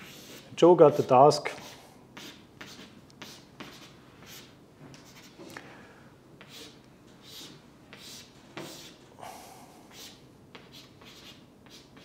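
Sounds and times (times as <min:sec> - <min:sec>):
chalk scratching on blackboard: 0:00.0 - 0:05.4, 0:06.4 - 0:09.0, 0:09.9 - 0:12.0.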